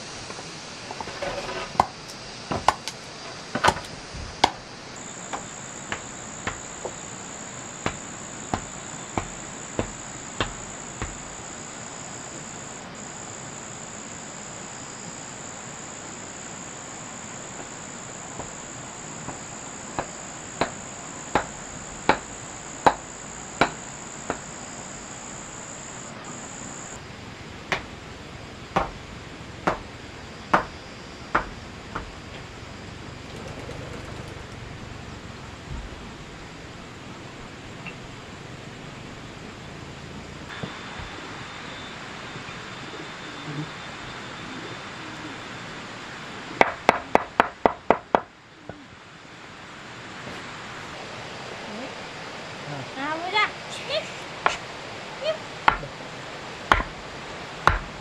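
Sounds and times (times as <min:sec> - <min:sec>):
high-pitched insect trill: 0:00.0 - 0:35.6, 0:37.7 - 0:46.1.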